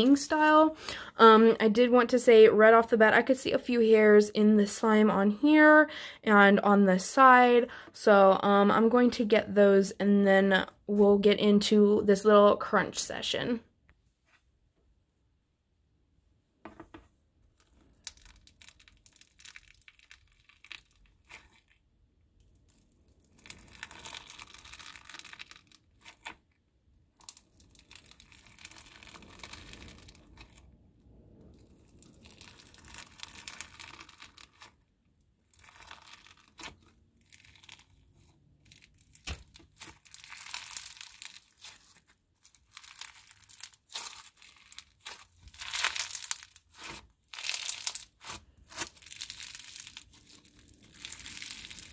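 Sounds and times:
crunchy slime crackling: 17.5s - 51.9s.

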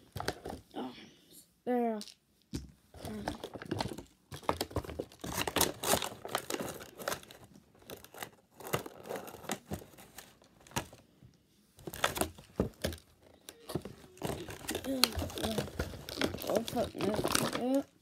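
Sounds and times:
packaging tearing and crinkling: 3.5s - 11.0s, 11.8s - 13.0s, 13.6s - 17.9s.

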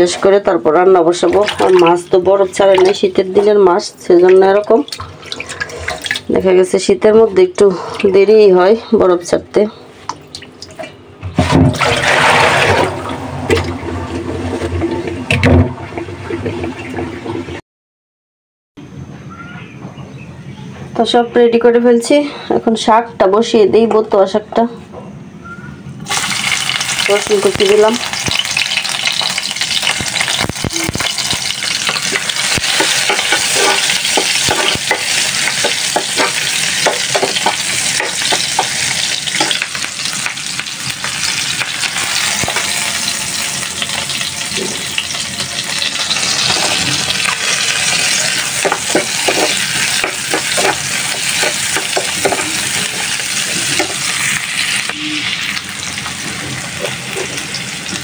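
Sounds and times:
vegetables sizzling in hot oil: 26.0s - 58.0s
metal spoon scraping pan: 31.9s - 38.8s, 48.0s - 54.0s.

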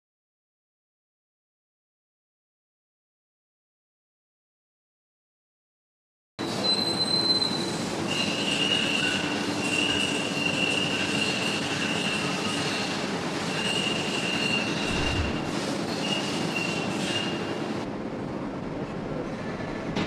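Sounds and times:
machine mechanical hum: 6.4s - 20.0s
high-pitched squealing whines: 13.5s - 17.4s
low thud: 14.9s - 15.6s.

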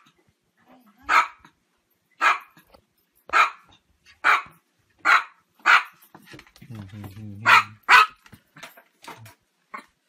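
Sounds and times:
small dog barking: 1.0s - 1.5s, 2.2s - 2.6s, 3.3s - 6.0s, 7.4s - 8.2s.

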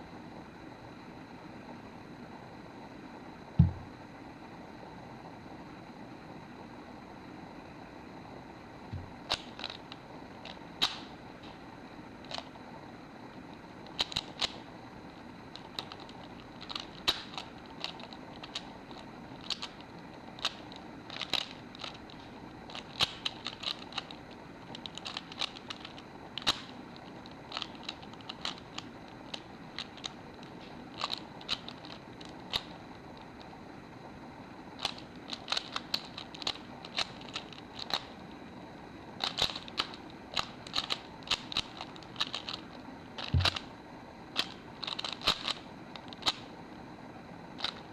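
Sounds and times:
puzzle cube plastic clicking: 8.9s - 11.6s, 12.2s - 12.6s, 13.8s - 33.6s, 34.7s - 38.4s, 39.1s - 46.5s, 47.5s - 47.9s.

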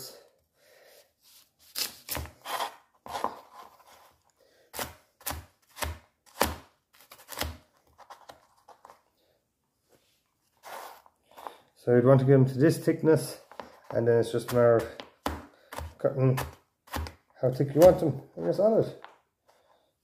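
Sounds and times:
knife cutting carrots: 1.6s - 4.0s, 4.7s - 8.4s, 13.6s - 18.5s.

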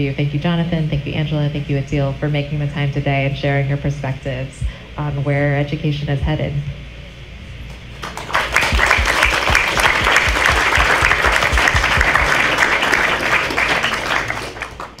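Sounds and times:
hands clapping close by: 7.7s - 15.0s
audience applauding: 7.9s - 15.0s.

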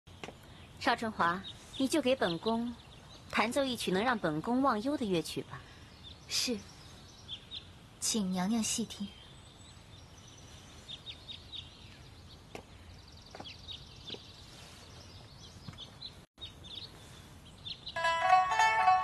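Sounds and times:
small birds chirping: 0.1s - 18.0s
pipa plucked melody: 18.0s - 19.0s.

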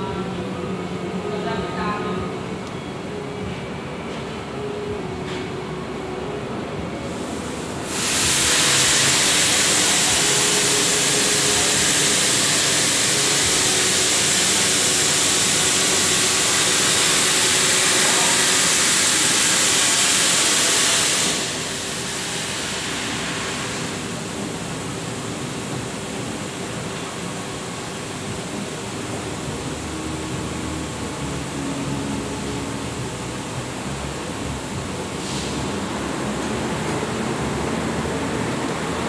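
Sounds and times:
faint machine hum: 0.0s - 39.0s
quieter hiss: 7.0s - 39.0s
plasma cutter arc hissing: 7.1s - 27.3s.

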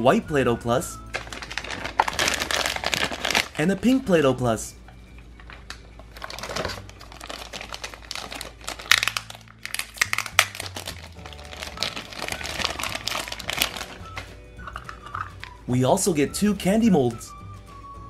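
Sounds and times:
plastic bag crinkling: 1.1s - 4.0s, 5.4s - 15.6s.

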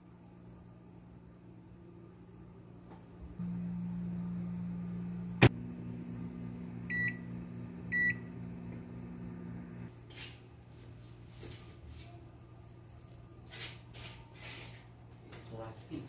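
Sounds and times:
microwave oven humming: 0.0s - 10.0s
short beeps: 6.9s - 7.2s, 7.9s - 8.3s.

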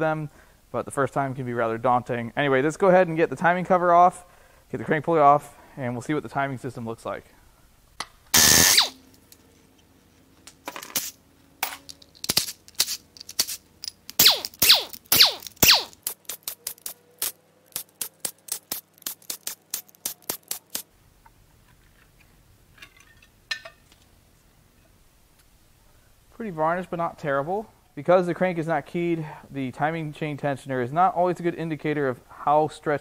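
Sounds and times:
cordless drill bursts: 8.4s - 9.0s
sharp metallic clicks: 12.3s - 20.8s.

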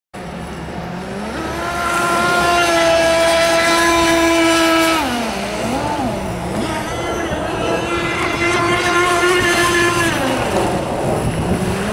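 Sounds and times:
rc boat motor whining: 0.6s - 11.9s.

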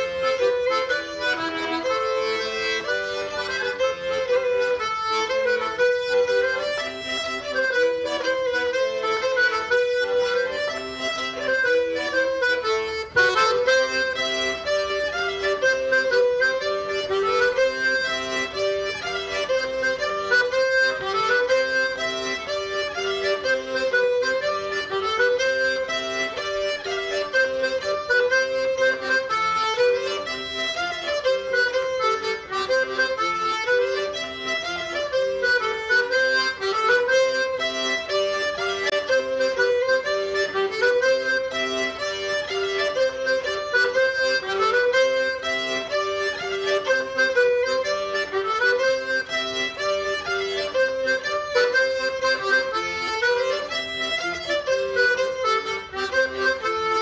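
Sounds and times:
accordion playing dance tune: 0.0s - 57.0s.

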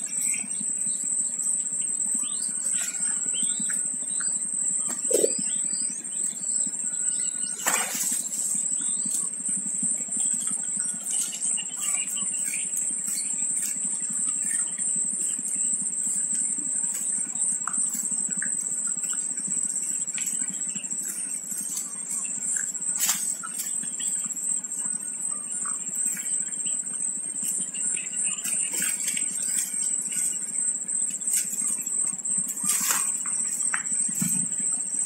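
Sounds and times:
faint bird chirps: 0.0s - 35.0s
high-pitched whine: 0.0s - 35.0s
low background hum: 0.0s - 35.0s
wings fluttering: 4.8s - 5.6s, 7.4s - 9.6s, 16.9s - 24.3s, 27.4s - 34.7s.

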